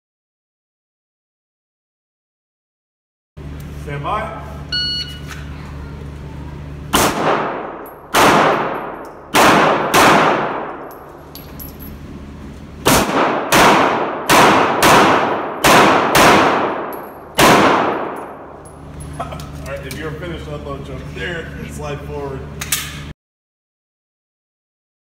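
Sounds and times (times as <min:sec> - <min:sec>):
pistol shots echoing indoors: 0:06.9 - 0:11.2, 0:12.8 - 0:18.6.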